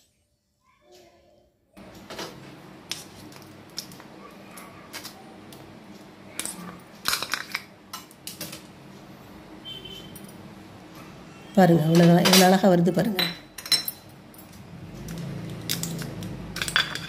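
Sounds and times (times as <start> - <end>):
utensils clinking on steel bowls: 6.4 - 8.6, 11.6 - 17.0.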